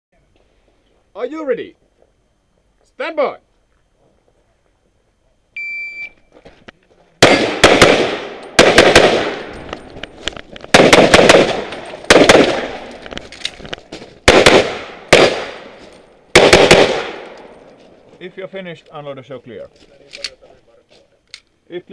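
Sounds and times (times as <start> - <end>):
electronic timer beep: 5.6 - 6.3
pistol shots: 7.2 - 9.8, 10.7 - 13.0, 14.2 - 17.5.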